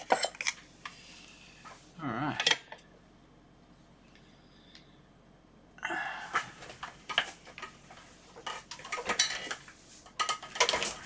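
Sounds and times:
metal tools clinking on workbench: 0.0 - 0.6.

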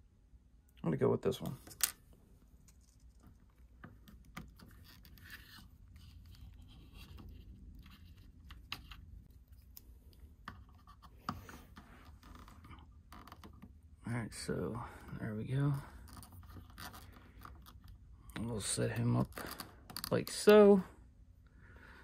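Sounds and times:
plastic figure scratching: 2.6 - 13.8, 16.0 - 18.0.

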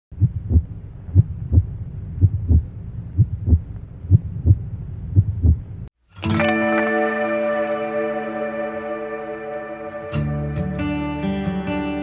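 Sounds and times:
heartbeat double thump: 0.2 - 5.7
music with sustained chords: 6.1 - 12.0.

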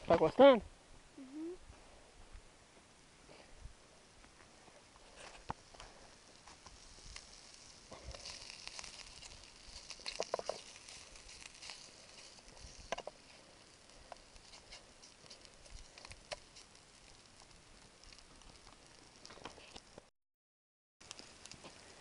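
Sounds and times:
food sizzling in oil: 5.5 - 20.1.

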